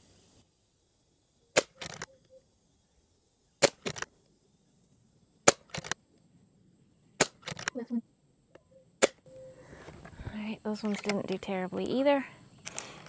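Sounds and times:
air rifle shots: 1.6 - 2.0, 3.6 - 4.1, 5.4 - 6.0, 7.2 - 7.7, 9.0 - 9.3
rattle of small clicks: 1.6 - 2.1, 3.6 - 4.2, 5.4 - 6.0, 7.2 - 7.8, 10.7 - 11.4, 12.6 - 13.0.

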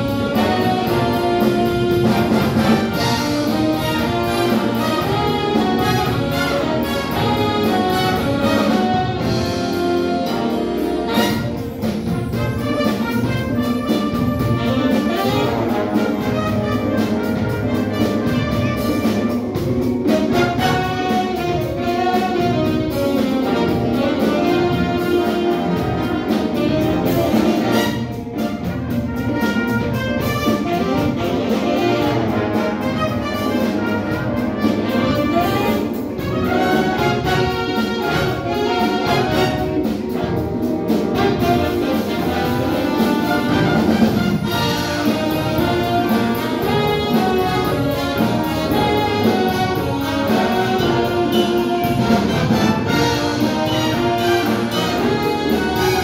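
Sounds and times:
big band jazz: 0.0 - 56.0
drum kit steady beat: 0.0 - 56.0
saxophones: 0.0 - 56.0
trombones: 0.0 - 56.0
trumpets: 0.0 - 56.0.

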